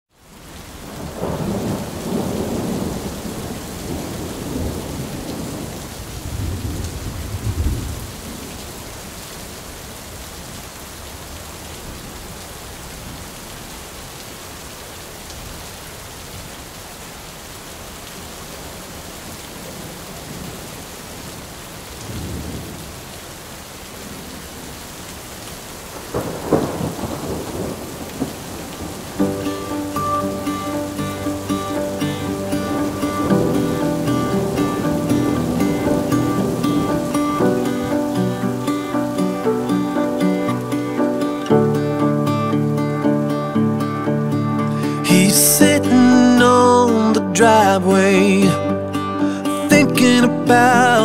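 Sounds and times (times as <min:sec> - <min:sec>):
steady rain: 0:00.1 - 0:51.0
rolling thunder: 0:01.0 - 0:08.5, 0:26.1 - 0:29.4.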